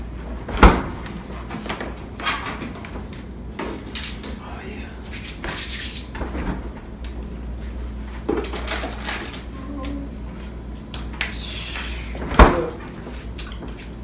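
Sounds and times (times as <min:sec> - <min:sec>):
refrigerator door opening: 0:00.2 - 0:04.4, 0:06.1 - 0:07.0, 0:11.8 - 0:14.0
refrigerator door shutting thud: 0:00.4 - 0:01.0, 0:12.1 - 0:12.9.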